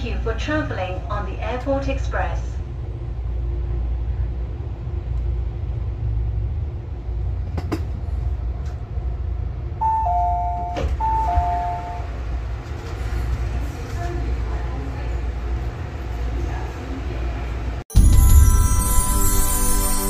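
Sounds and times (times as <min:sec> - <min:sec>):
train rumble: 0:00.0 - 0:20.0
two-tone electronic chime: 0:09.8 - 0:12.0, 0:17.9 - 0:20.0.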